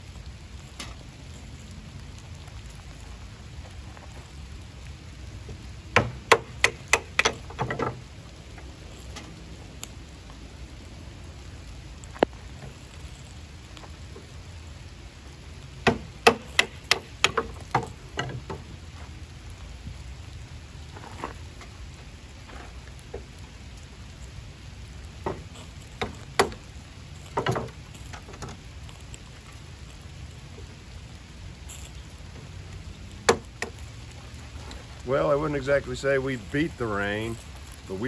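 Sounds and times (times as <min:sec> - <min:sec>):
steady rain falling: 0:00.0 - 0:38.0
wooden sticks cracking: 0:03.7 - 0:10.3, 0:15.3 - 0:19.2, 0:20.9 - 0:31.0, 0:31.6 - 0:38.0.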